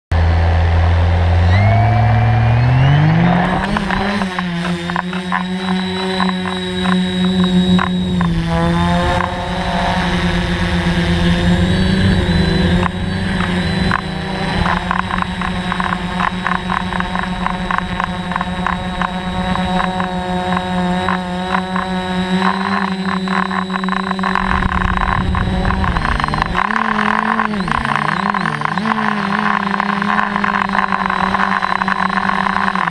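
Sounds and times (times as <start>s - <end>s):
drone motors buzzing: 0.2s - 32.9s
gusty rushing wind noise: 24.2s - 27.8s.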